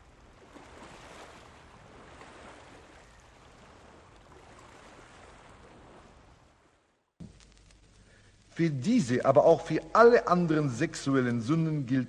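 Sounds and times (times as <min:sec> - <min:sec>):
small waves washing over rocks: 0:00.0 - 0:06.8.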